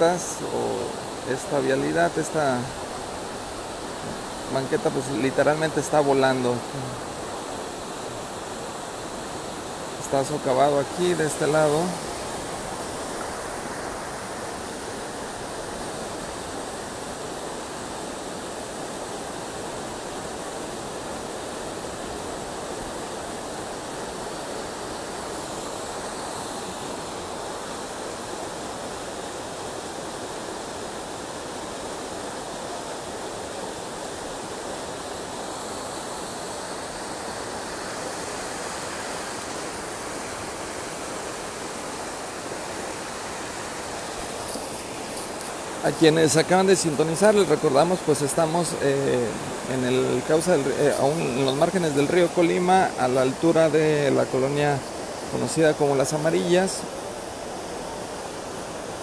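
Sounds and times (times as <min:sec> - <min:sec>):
river in flood rushing: 0:00.0 - 0:59.0.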